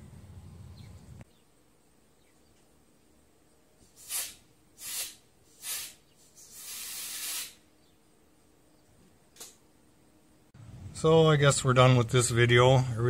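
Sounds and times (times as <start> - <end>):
compressed air blowgun hissing: 3.8 - 7.7.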